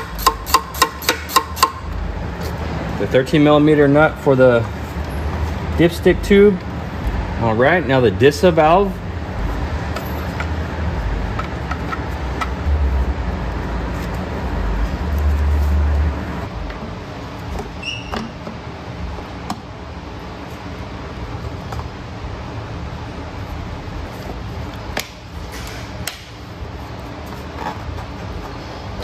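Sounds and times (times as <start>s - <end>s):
low rumbling: 1.8s - 17.6s
brief squeak: 17.8s - 18.3s.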